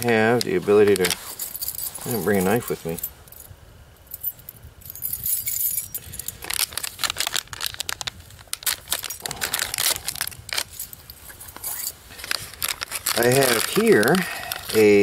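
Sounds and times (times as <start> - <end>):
foil bag crinkling: 0.0 - 3.0, 6.0 - 15.0.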